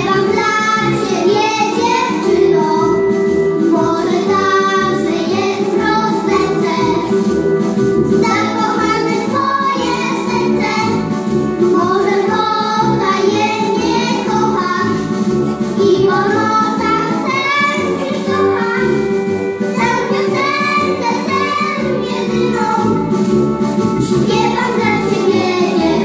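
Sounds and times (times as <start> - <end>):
violin accompaniment: 0.0 - 26.0
girls singing together: 19.8 - 22.9.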